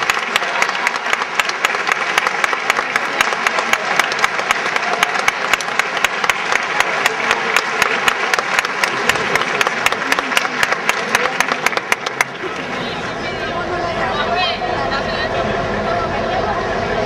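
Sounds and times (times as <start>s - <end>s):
fast claps close by: 0.0s - 12.6s
audience applauding: 0.0s - 13.2s.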